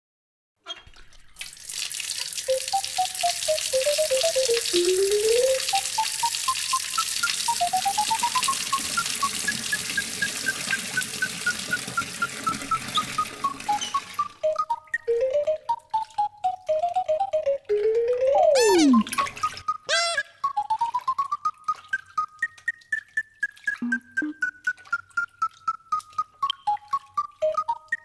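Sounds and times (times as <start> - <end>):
water running hard from tap: 0.9 - 14.6.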